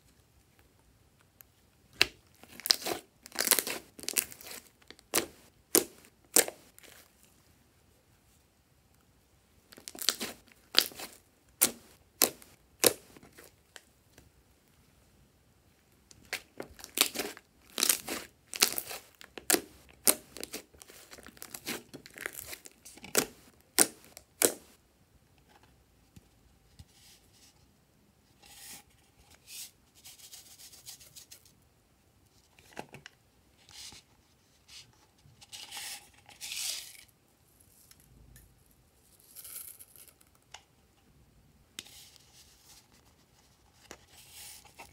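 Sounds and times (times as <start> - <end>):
slime squishing: 1.9 - 7.1, 9.7 - 13.6, 16.1 - 24.8.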